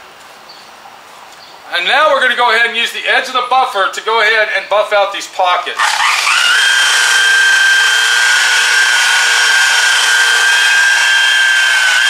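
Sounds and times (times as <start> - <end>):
rotary buffer whining: 5.8 - 12.0.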